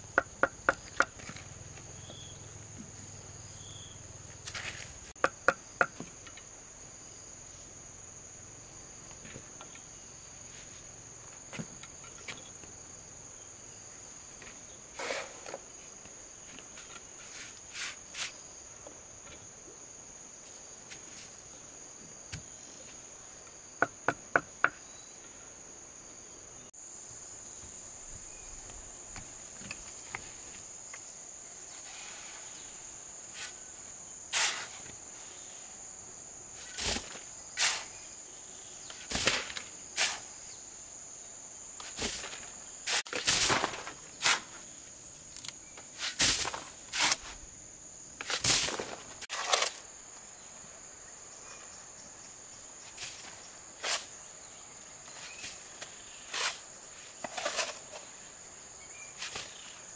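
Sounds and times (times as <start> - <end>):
insects chirring: 0.0 - 59.9
shovel scraping mortar in wheelbarrow: 14.9 - 15.6, 34.3 - 34.9, 36.6 - 37.9, 39.0 - 40.3, 41.8 - 44.6, 46.0 - 47.4, 48.2 - 49.9, 53.0 - 54.1, 56.3 - 58.1.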